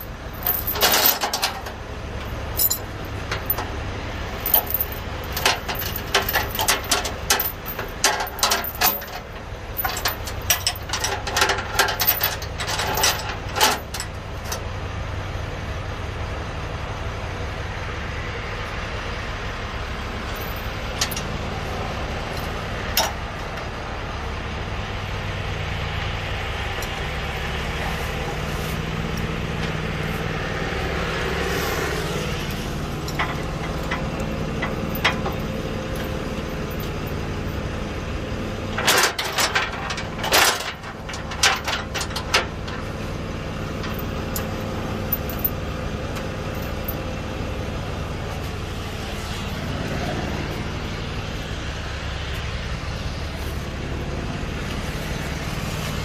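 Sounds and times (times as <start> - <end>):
chain clinking against metal bumper: 0.0 - 14.6, 20.2 - 23.7, 27.8 - 30.3, 31.5 - 38.0, 38.6 - 47.5
truck engine running: 0.0 - 56.0.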